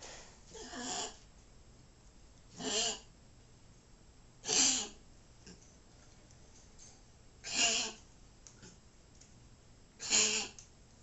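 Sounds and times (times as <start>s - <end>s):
dog coughing wheezily: 4.4s - 4.9s.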